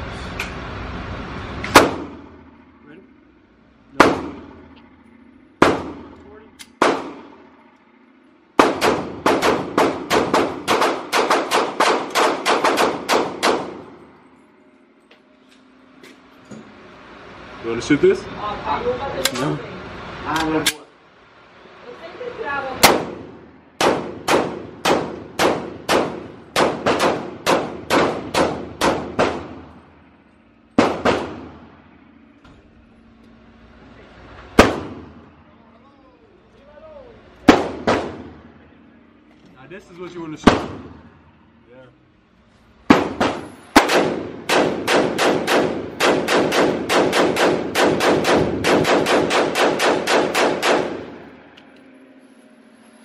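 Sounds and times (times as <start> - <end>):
pistol shots echoing indoors: 8.6 - 13.9, 23.8 - 29.7, 30.8 - 31.6, 42.9 - 51.2.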